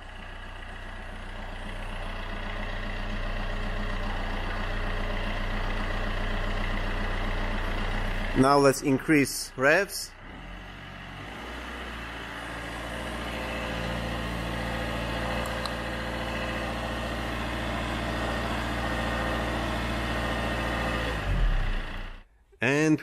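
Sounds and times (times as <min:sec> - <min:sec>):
diesel car engine revving: 0:00.0 - 0:22.3.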